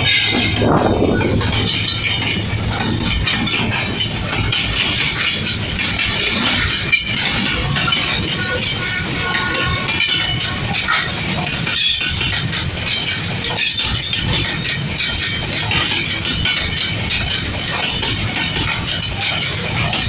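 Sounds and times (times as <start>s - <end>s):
train wheels rumbling on rails: 0.0s - 20.0s
wheels clicking over track joints: 0.0s - 20.0s.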